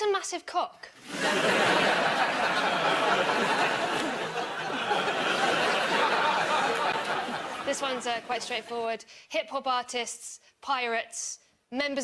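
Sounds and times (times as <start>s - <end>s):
audience laughing: 1.0s - 8.8s.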